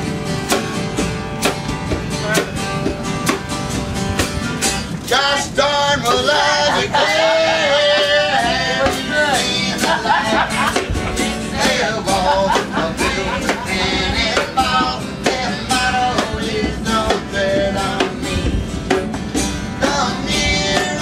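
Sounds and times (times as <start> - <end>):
acoustic guitars strumming: 0.0 - 21.0
person singing: 5.1 - 10.5.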